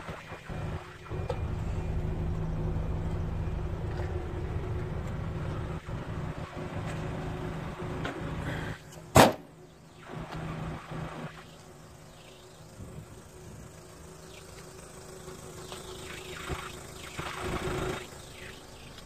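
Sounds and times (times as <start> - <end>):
diesel engine idling: 0.0 - 19.0
loud sharp thump: 9.1 - 9.5.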